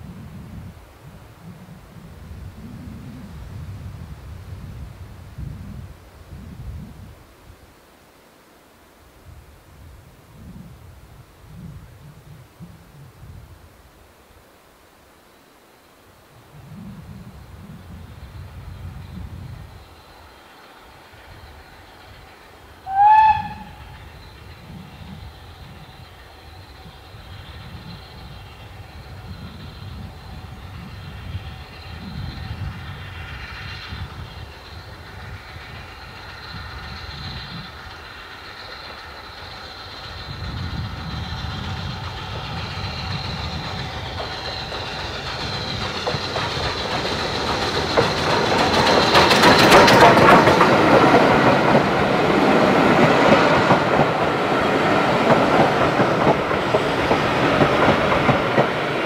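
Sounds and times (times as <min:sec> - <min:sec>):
steam locomotive running: 0:16.2 - 0:59.0
wheels clacking over rail joints: 0:18.8 - 0:59.0.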